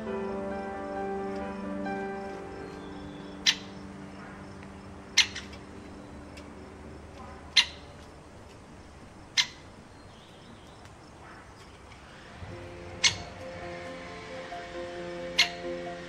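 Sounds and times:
woodpecker sharp high calls: 2.8 - 4.4, 5.2 - 5.7, 7.5 - 7.9, 9.3 - 10.8, 13.0 - 13.4, 15.3 - 15.6.

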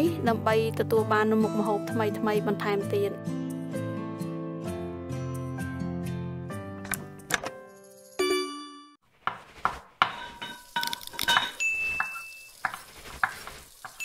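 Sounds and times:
high ringing tone: 11.5 - 12.6.

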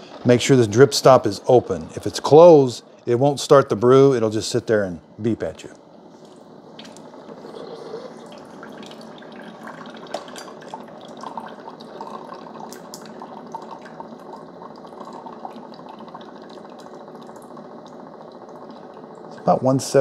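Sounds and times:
coffee pouring into a mug: 6.8 - 19.4
dripping splashes: 8.2 - 19.5.

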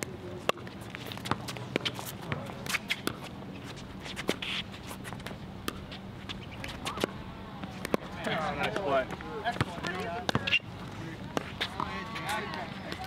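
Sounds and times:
shoes scuffing on court: 0.4 - 13.0
ball bouncing on hard court: 9.5 - 10.6.

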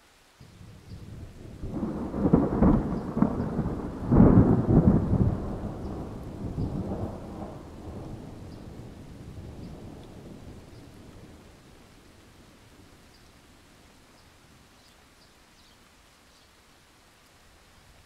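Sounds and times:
rain falling: 0.0 - 18.0
thunder rumbling: 0.5 - 12.9.

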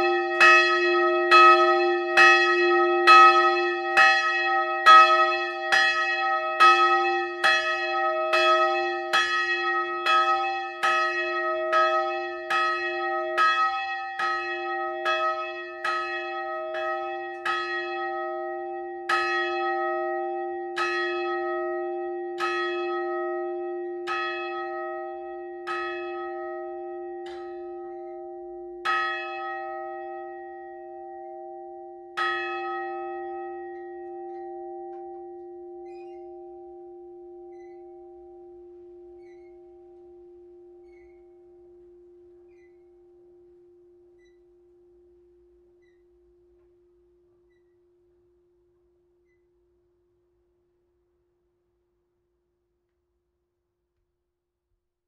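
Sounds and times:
church bell ringing: 0.0 - 49.5
low bell hum: 21.4 - 48.4.

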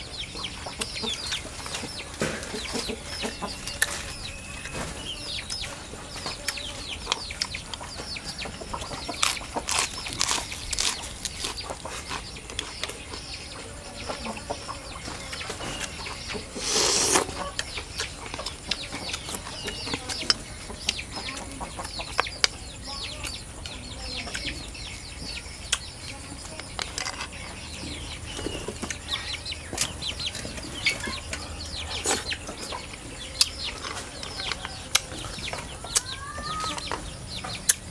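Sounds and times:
chickens clucking: 0.0 - 37.9.

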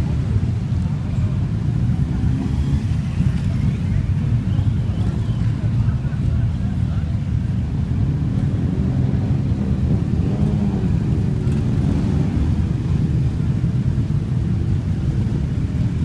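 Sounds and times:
motorcycle engines rumbling: 0.0 - 16.0
motorcycle engine revving: 8.4 - 13.1.

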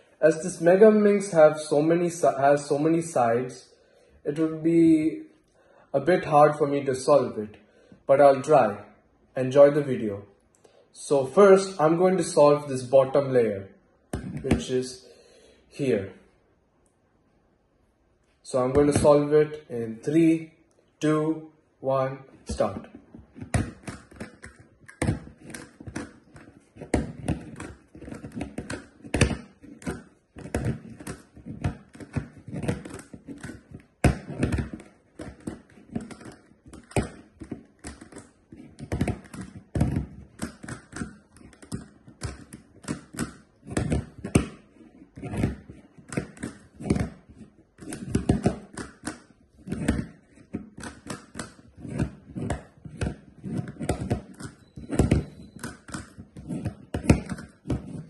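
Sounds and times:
plastic puzzle cube clicking: 22.7 - 58.0.

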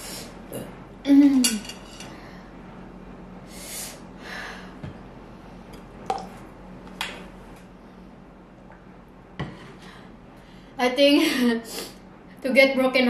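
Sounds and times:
person hissing breaths: 3.5 - 4.8.

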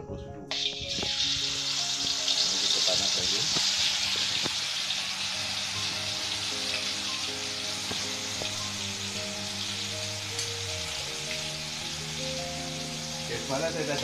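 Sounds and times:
soft background music: 0.0 - 14.0
oil sizzling in a wok: 0.5 - 14.0.

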